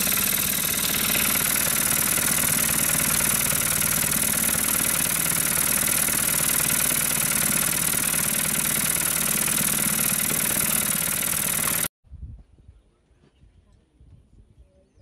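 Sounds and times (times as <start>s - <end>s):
engine idling: 0.0s - 11.9s.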